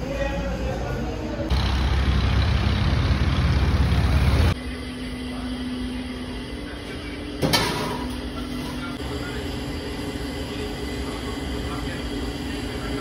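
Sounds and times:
road traffic rumble: 0.8s - 4.9s.

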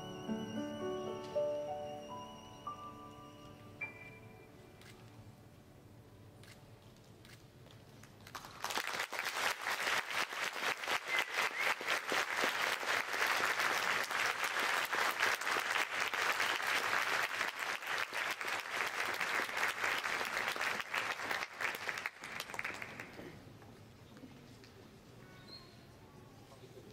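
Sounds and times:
audience applause: 8.3s - 23.4s.

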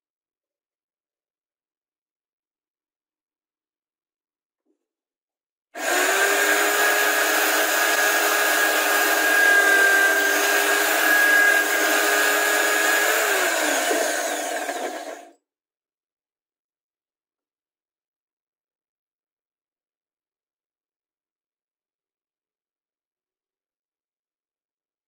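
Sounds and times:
drill bit cutting plywood: 5.8s - 15.3s
electric drill whining: 5.8s - 15.3s.

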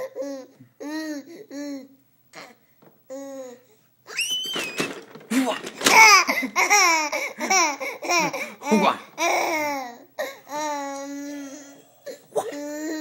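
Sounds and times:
baby laughing: 5.9s - 10.0s.

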